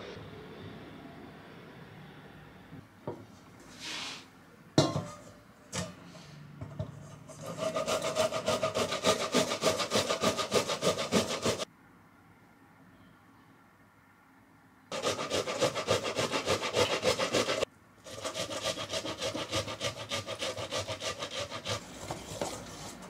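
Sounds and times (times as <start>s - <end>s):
tomato rasping on a grater: 7.3s - 11.6s, 14.9s - 23.0s.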